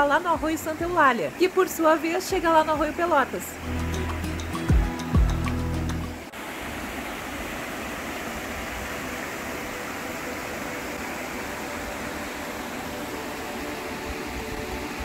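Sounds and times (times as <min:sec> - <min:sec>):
background music: 0:00.0 - 0:06.3, 0:09.6 - 0:15.0
creek water flowing: 0:00.0 - 0:15.0.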